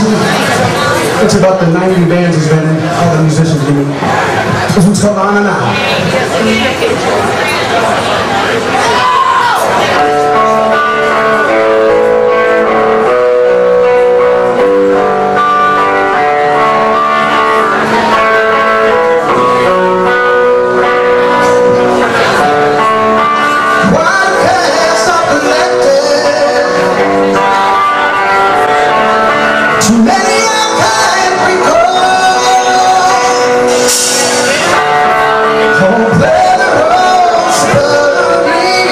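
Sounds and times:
drums: 0.0s - 7.6s, 8.7s - 38.9s
electric guitars: 0.0s - 38.9s
person singing: 15.3s - 38.9s.

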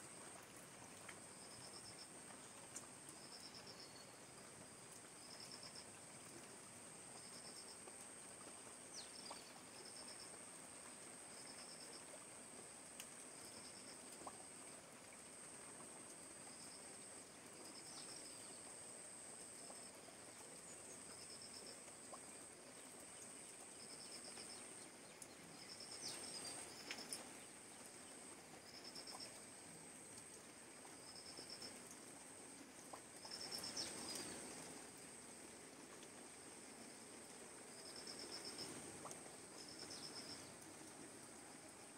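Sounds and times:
rain falling on water and leaves: 0.0s - 41.9s
insects trilling: 39.5s - 40.6s.

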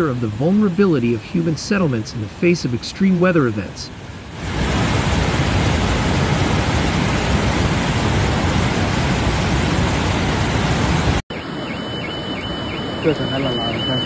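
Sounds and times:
water rushing through spillway: 0.0s - 11.2s.

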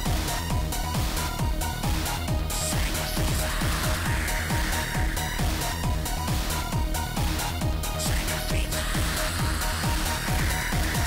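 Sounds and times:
fast kick drum beat: 0.0s - 11.0s.

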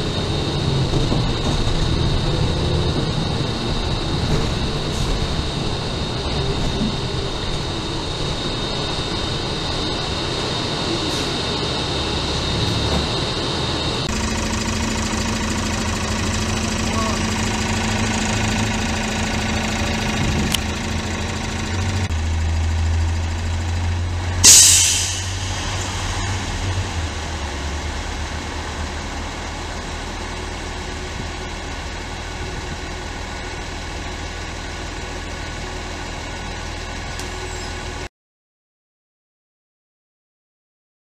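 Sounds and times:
bus engine idling: 0.0s - 38.1s
air brakes hissing: 9.3s - 19.0s, 24.4s - 27.2s.

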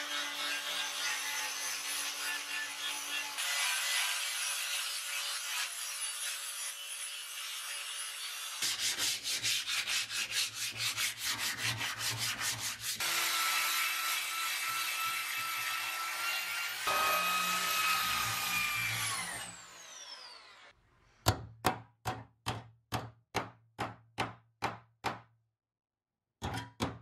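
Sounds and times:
hand sanding with sandpaper: 8.6s - 13.0s
power drill wire brush whine: 16.7s - 20.7s.

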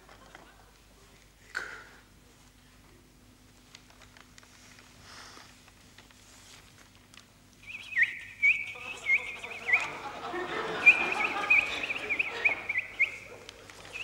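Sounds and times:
man whistling bird call: 7.6s - 10.0s, 10.6s - 14.0s.

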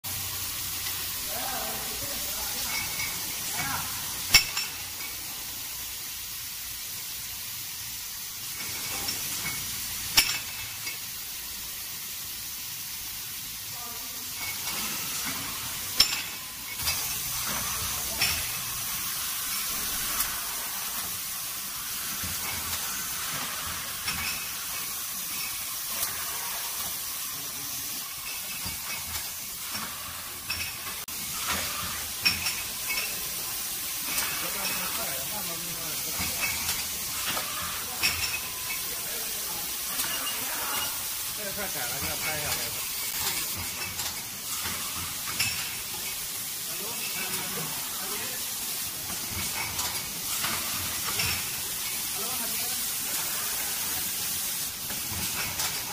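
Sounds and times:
printing machine hiss: 0.1s - 55.9s
glass bottles clinking: 2.4s - 5.4s, 8.5s - 11.1s, 14.3s - 20.2s, 22.2s - 27.0s, 28.0s - 48.3s, 49.0s - 52.3s, 54.9s - 55.9s.

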